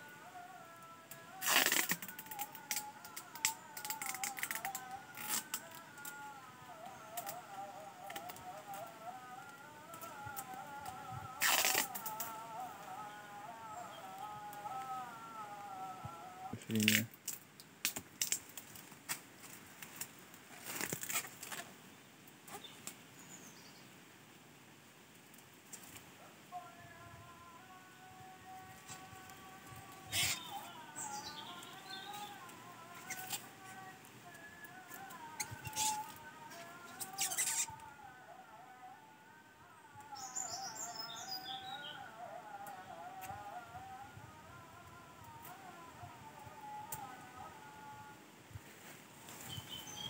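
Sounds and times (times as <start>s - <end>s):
plastic film crackling: 0.7s - 13.0s, 16.7s - 21.7s, 28.7s - 37.9s
plastic tape ripping off roll: 0.9s - 6.2s, 8.0s - 8.9s, 9.9s - 12.4s, 16.7s - 19.2s, 19.8s - 21.7s, 28.8s - 30.7s, 31.7s - 33.9s, 34.7s - 37.8s.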